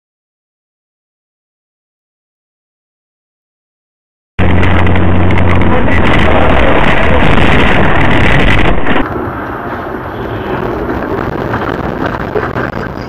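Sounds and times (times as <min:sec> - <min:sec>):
car road and engine noise: 0:04.4 - 0:13.0.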